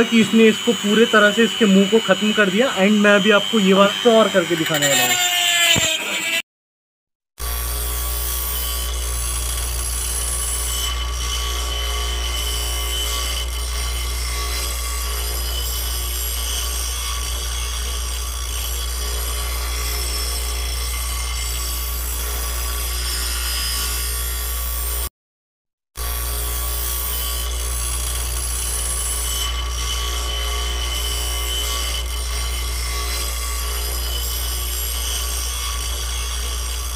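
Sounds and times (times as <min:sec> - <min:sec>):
grinding stone scraping metal: 0:00.0 - 0:06.4
rotary tool motor whine: 0:00.0 - 0:06.4, 0:07.4 - 0:25.1, 0:26.0 - 0:36.9.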